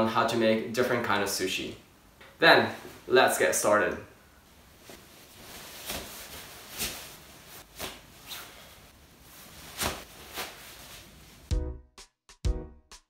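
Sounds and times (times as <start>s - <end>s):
fabric rustling swishes: 4.5s - 11.5s.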